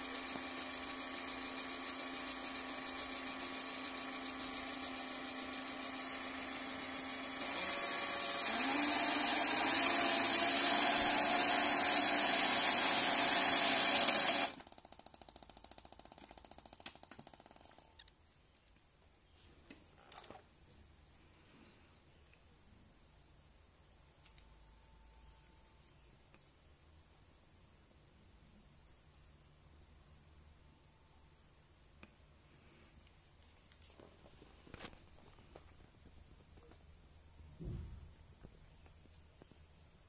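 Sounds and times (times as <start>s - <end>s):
small electric motor whirring: 0.0s - 17.8s.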